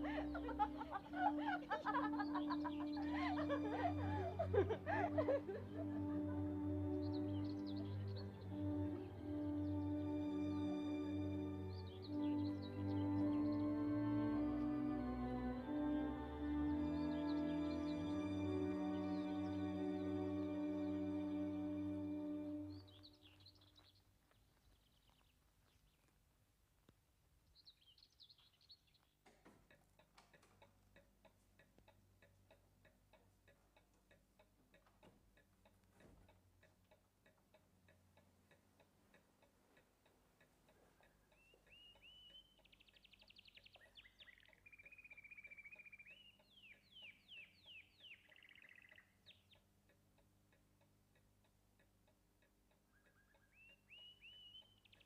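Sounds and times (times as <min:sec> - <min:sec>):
bird chirps and trills: 0:00.0 - 0:04.4, 0:05.6 - 0:14.3, 0:41.0 - 0:49.8, 0:52.8 - 0:55.0
faint regular ticking: 0:29.7 - 0:47.0, 0:49.0 - 0:53.9.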